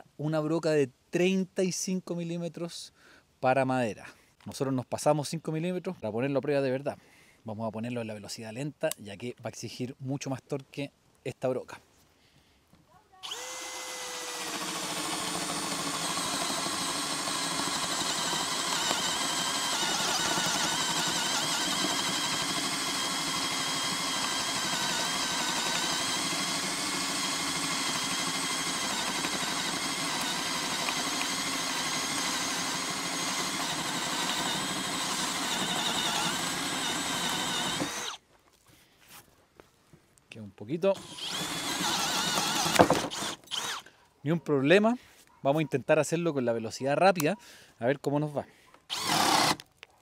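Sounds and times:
cordless drill boring wood: 13.2s - 38.2s, 40.9s - 43.9s, 48.9s - 49.6s.

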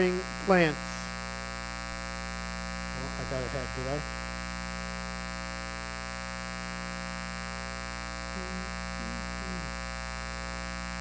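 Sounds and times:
electrical mains hum: 0.0s - 11.0s
faint voice: 8.3s - 9.9s.

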